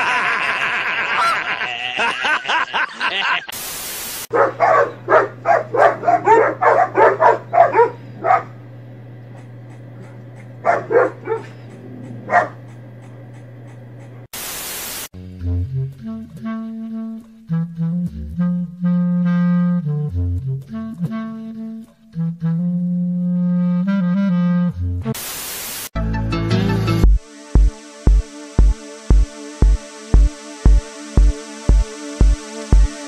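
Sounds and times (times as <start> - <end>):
static-like hiss bursts: 3.5 - 4.3, 14.3 - 15.1, 25.2 - 25.9
dogs barking rapidly: 4.3 - 14.3
steady low hum: 4.3 - 14.3.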